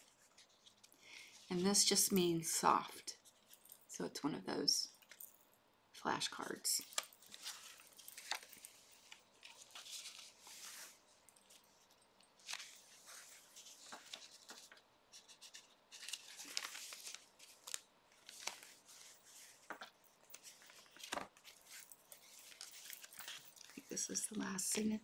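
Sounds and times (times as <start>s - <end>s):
paper pages rustling: 6.8s - 25.0s.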